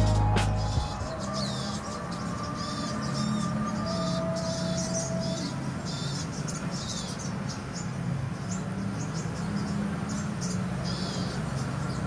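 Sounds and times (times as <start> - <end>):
steady low hum: 0.0 - 1.3
songbirds chirping: 0.0 - 12.0.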